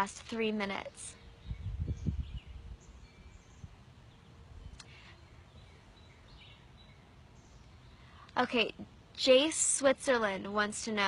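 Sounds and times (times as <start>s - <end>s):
faint bird chirps: 0.8s - 8.8s.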